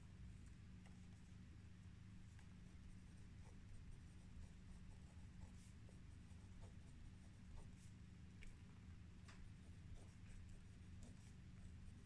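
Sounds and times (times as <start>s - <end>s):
steady low hum: 0.0s - 12.0s
pen scratching on paper: 2.3s - 8.0s, 9.5s - 12.0s.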